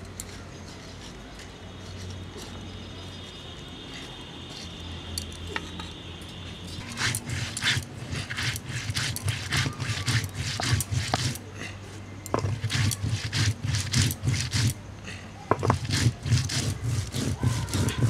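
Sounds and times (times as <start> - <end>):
stone roller scraping grinding stone: 6.6 - 11.5, 12.3 - 14.8, 15.5 - 18.0.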